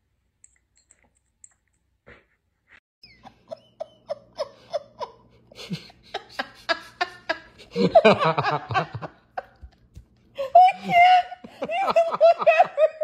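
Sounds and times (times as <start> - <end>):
person laughing: 3.2 - 13.0.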